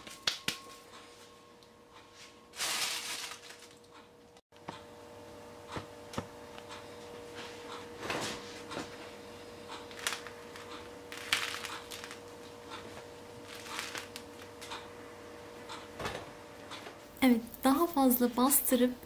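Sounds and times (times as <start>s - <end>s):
bread crust crackling: 9.9s - 12.4s, 13.4s - 14.7s.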